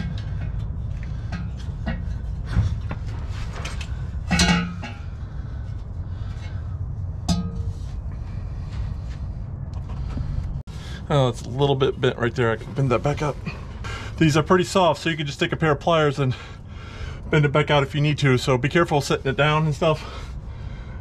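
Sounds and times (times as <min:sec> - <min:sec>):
metal rods clinking and knocking: 0:00.0 - 0:05.2
steady low rumble: 0:00.0 - 0:21.0.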